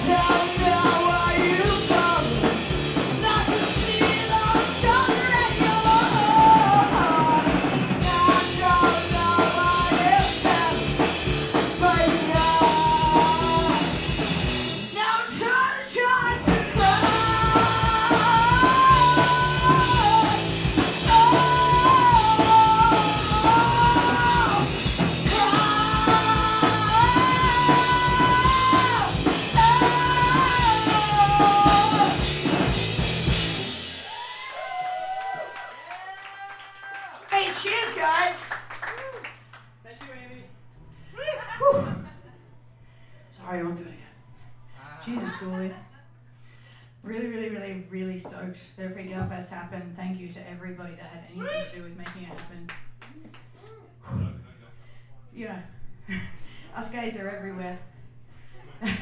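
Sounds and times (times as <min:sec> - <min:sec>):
person singing lead vocal: 0:00.0 - 0:14.3, 0:14.9 - 0:32.6
bass guitar: 0:00.0 - 0:34.4
drum kit: 0:00.0 - 0:35.3.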